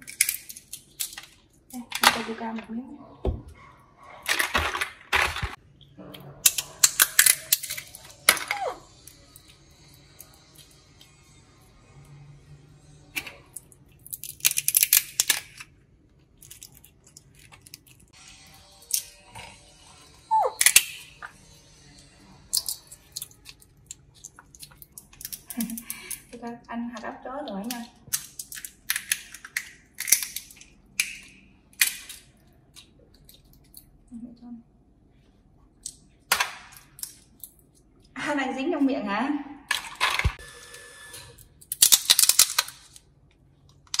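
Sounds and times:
walnut shells cracking: 0.0s - 1.8s, 6.4s - 9.2s, 13.6s - 15.7s, 16.3s - 18.0s, 20.6s - 21.3s, 22.5s - 26.4s, 27.6s - 33.9s, 35.8s - 37.9s, 41.6s - 43.1s.

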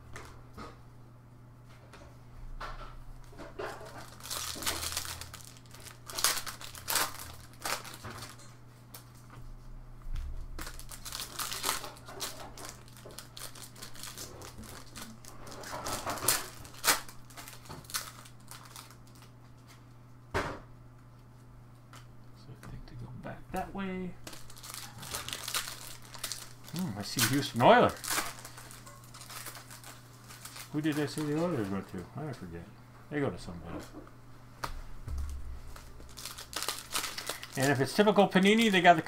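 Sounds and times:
low steady hum: 0.0s - 39.0s
card pack wrappers crinkling and tearing: 3.7s - 9.2s, 10.6s - 19.8s, 24.2s - 32.4s, 35.2s - 39.0s.

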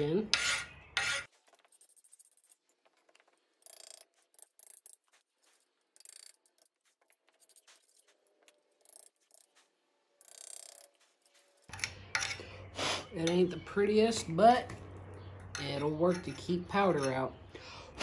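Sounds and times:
tool scraping metal: 0.1s - 2.8s.

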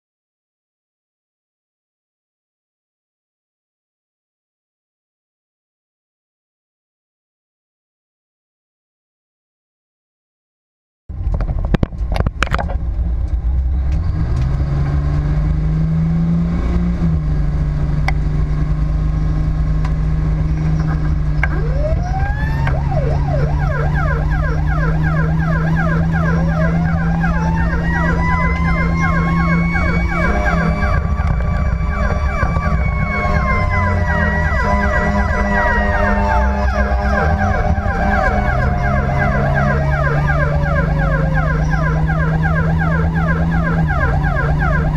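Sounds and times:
engine and road rumble: 11.1s - 44.9s
siren rising wail: 20.2s - 44.9s
siren rapid yelp: 21.2s - 44.9s.

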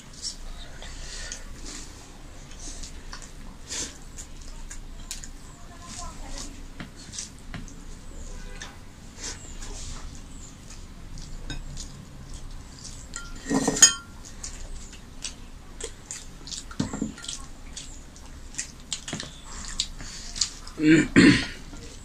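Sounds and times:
steel bowl clanking on plate: 13.1s - 14.2s.

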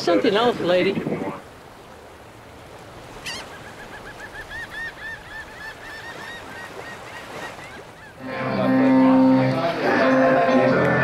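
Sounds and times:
bird calling: 3.1s - 10.1s.

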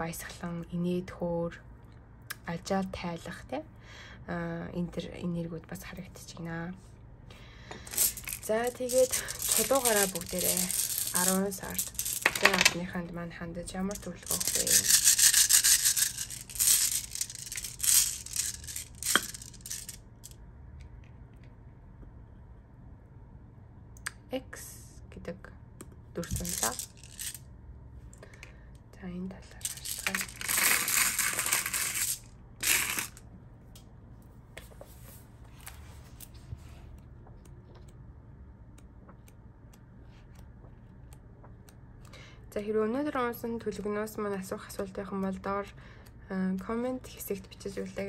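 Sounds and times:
stones rattling and clattering: 7.9s - 12.8s, 13.9s - 20.0s
stones rustling in a pouch: 7.9s - 12.8s.

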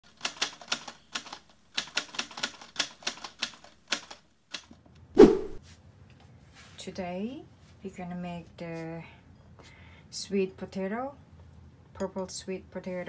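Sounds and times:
typewriter keystrokes clacking: 0.1s - 4.7s.

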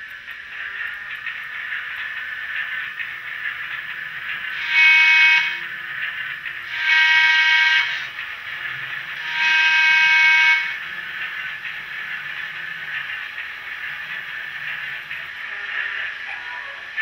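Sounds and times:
model trolley horn blasts: 4.5s - 5.7s, 6.7s - 8.1s, 9.2s - 10.8s.

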